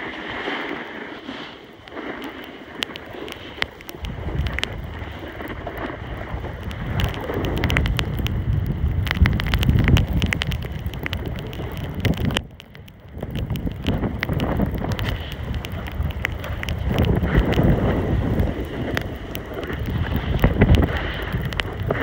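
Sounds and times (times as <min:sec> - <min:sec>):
board edges scraping snow: 0:00.0 - 0:07.8
wind rushing over microphone: 0:01.8 - 0:22.0.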